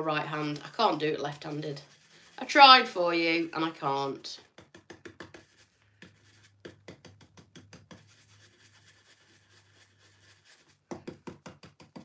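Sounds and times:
soft brushing: 0.2s - 4.6s, 5.2s - 6.8s, 7.9s - 10.9s
brush tapping: 3.2s - 12.0s.

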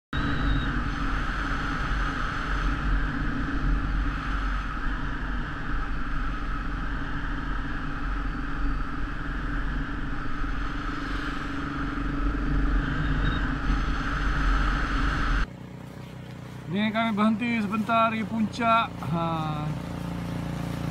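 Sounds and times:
wind rushing over microphone: 0.1s - 15.5s
motorcycle engine running: 0.1s - 20.9s.

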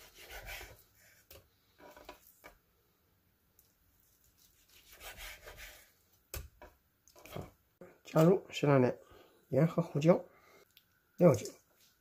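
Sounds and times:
knife slicing fish on board: 0.0s - 1.4s, 4.4s - 6.5s.

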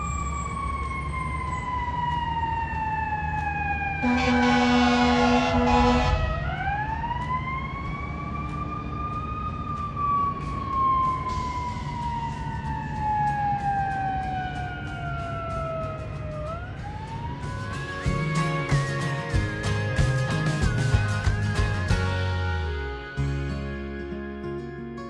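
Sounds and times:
fire engine siren: 0.0s - 21.4s
traffic noise: 0.0s - 24.2s
horn blast: 4.0s - 6.5s.

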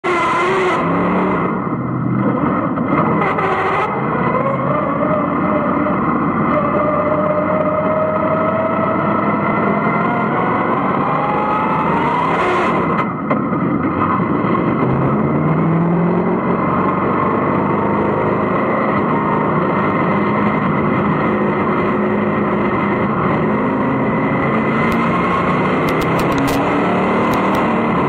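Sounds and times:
race car engine accelerating: 14.1s - 28.0s.

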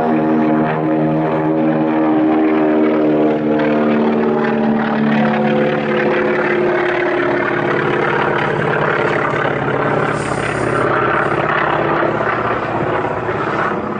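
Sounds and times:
propeller plane engine drone: 0.0s - 13.9s.

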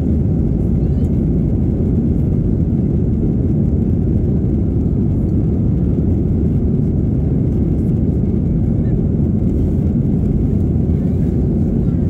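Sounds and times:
jet cabin engine and airflow noise: 0.0s - 12.0s.

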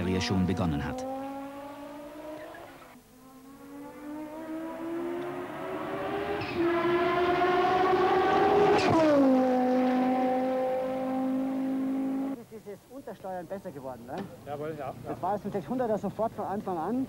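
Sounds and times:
race car engine accelerating: 0.2s - 12.4s.

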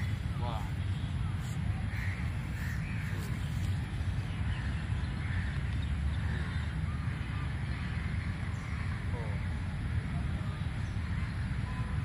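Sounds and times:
steady low rumble: 0.0s - 12.0s
crows cawing: 1.9s - 3.2s.

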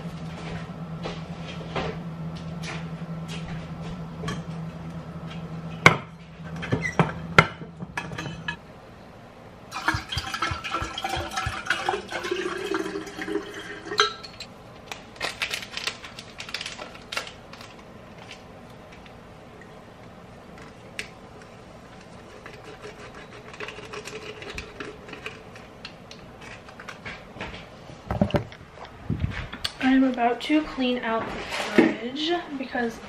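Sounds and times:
low hum: 0.0s - 15.0s
water pouring into bottle: 9.7s - 14.0s
packet clicks and crinkles: 14.8s - 19.2s.

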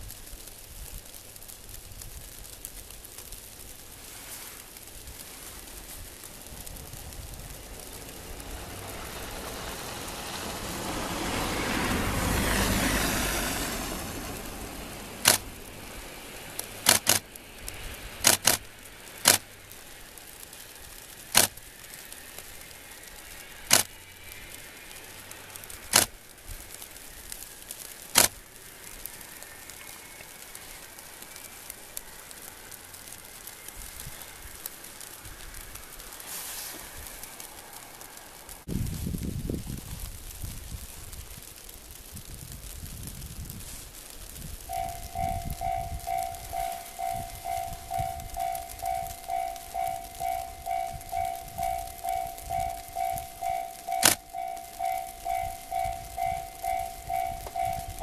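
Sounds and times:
diesel railcar engine droning: 0.0s - 40.6s, 43.5s - 58.0s
sharp clicks: 15.2s - 15.6s, 16.5s - 19.5s, 21.3s - 22.0s, 23.7s - 24.0s, 25.6s - 26.2s, 27.7s - 28.4s, 44.7s - 58.0s.

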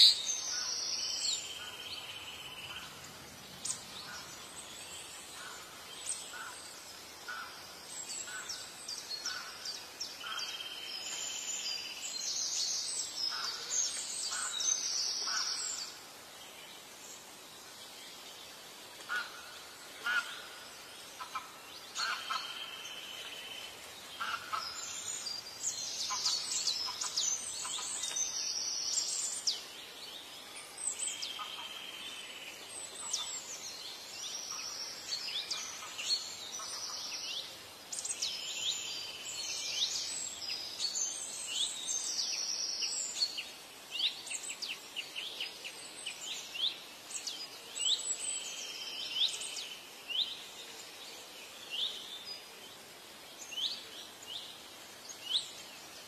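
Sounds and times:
faint background hiss: 0.0s - 56.0s
wild birds chirping and trilling: 0.0s - 56.0s.

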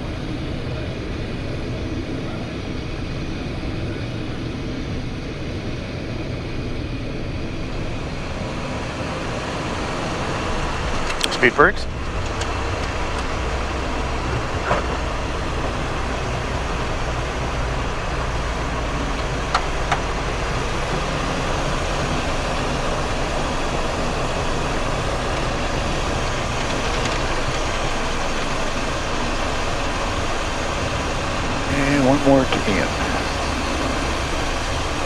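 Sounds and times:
jet engines rushing: 0.0s - 35.0s.

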